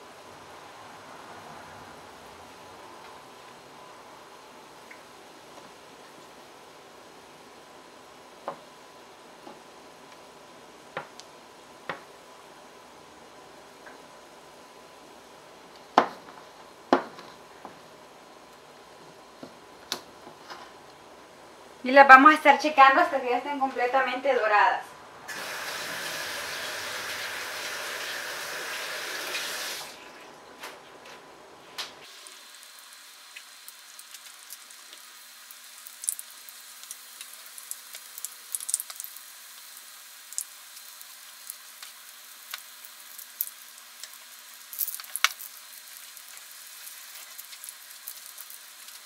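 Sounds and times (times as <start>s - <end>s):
tortillas sizzling in hot oil: 25.3s - 30.0s, 32.0s - 49.0s
oil popping and crackling: 32.0s - 49.0s.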